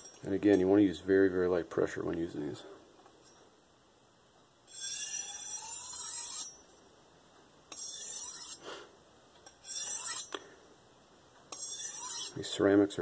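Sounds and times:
knife scraping on honing rod: 4.7 - 6.7, 7.7 - 8.6, 9.5 - 10.4, 11.5 - 12.6.

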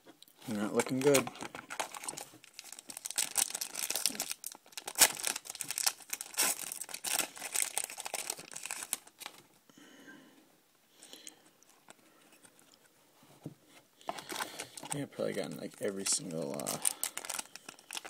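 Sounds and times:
foil wrapper crinkling and tearing: 0.5 - 9.4, 15.6 - 18.0.

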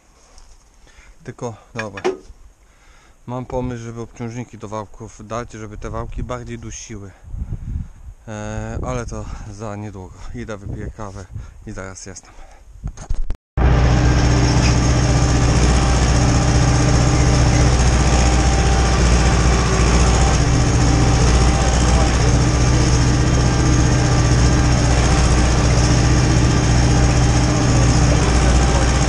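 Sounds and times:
tractor diesel engine running: 13.6 - 29.0.

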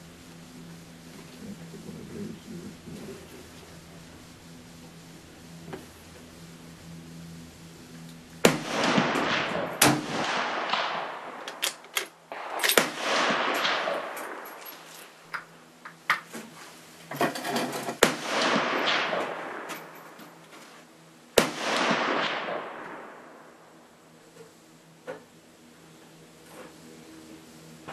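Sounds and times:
rifle shots echoing: 8.4 - 15.1, 18.0 - 19.9, 21.4 - 23.7.

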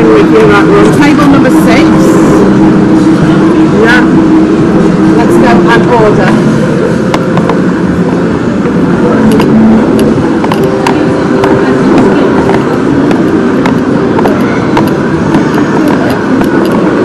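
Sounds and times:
busy diner hubbub: 0.0 - 17.0
sharp clicks and clatter: 9.2 - 17.0.

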